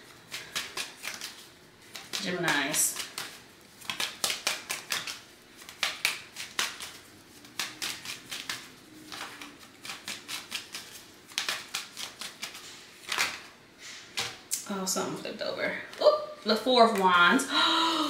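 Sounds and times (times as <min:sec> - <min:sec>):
cards being shuffled: 0:00.1 - 0:14.5.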